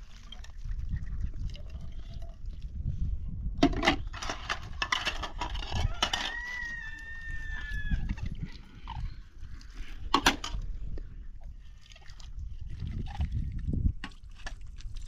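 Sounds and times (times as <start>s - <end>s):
rooster crowing: 5.8s - 8.2s.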